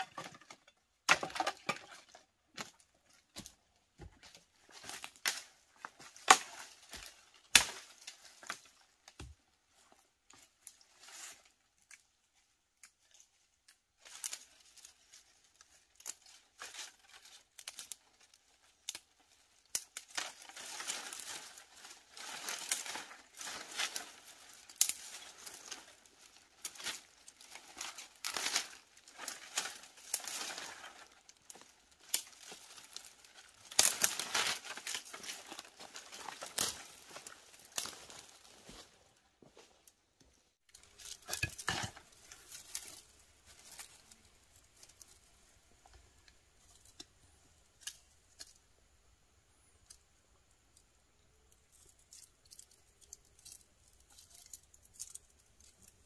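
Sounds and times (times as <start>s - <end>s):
dry leaves rustling: 1.3s - 12.1s, 12.9s - 39.1s, 40.7s - 45.8s, 51.8s - 56.0s
sharp twig cracks: 6.2s - 8.6s, 26.6s - 35.6s.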